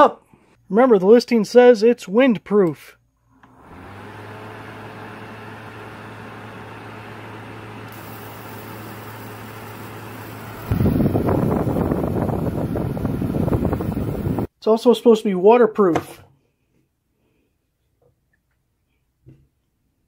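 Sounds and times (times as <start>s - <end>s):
electric fan running: 3.3s - 14.5s
wind rumble on microphone: 10.7s - 14.5s.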